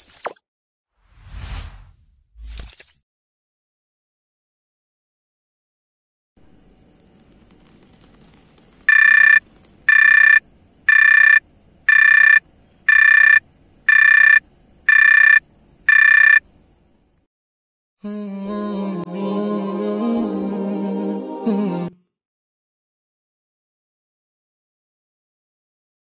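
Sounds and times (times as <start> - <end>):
alarm clock beeping: 8.9 - 16.4.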